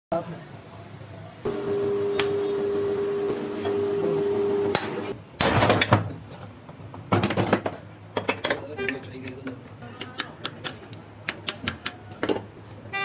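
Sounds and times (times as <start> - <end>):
metal-on-metal knocking and clattering: 7.0 - 8.7.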